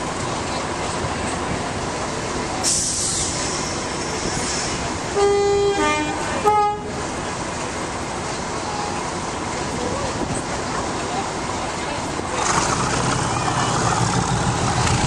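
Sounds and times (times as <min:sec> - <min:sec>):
steady engine rumble: 0:00.0 - 0:15.0
air hiss: 0:02.6 - 0:05.0
locomotive air horn blasts: 0:05.1 - 0:07.0.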